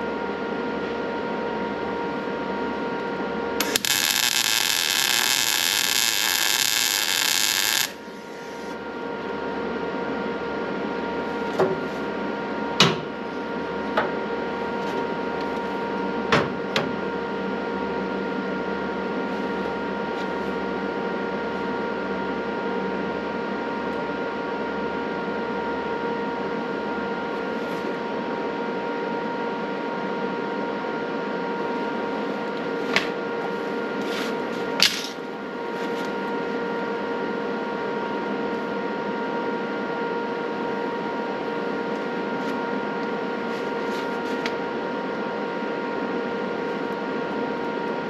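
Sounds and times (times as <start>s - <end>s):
machine hum: 0.0s - 11.5s
electric welding arc: 3.6s - 8.1s.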